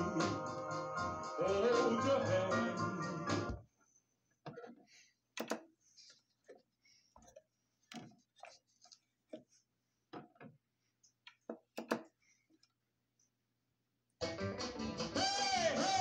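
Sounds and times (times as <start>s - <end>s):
clicks and knocks: 11.3s - 12.1s.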